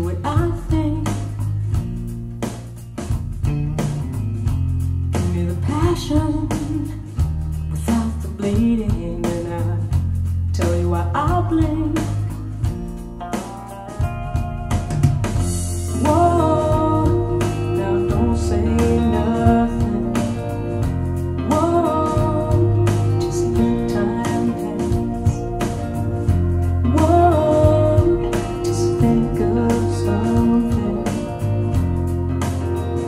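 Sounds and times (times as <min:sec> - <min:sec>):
woman singing: 0:00.0 - 0:01.5, 0:05.2 - 0:12.4, 0:15.9 - 0:26.0, 0:26.6 - 0:32.1
guitar bass and drum kit: 0:00.0 - 0:33.0.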